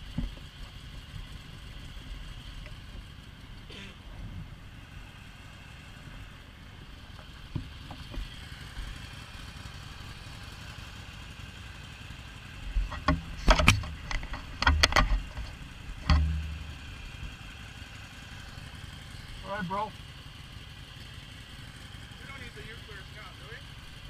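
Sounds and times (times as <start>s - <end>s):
low background rumble: 12.1s - 20.6s
sharp knocks and clicks: 12.8s - 16.9s.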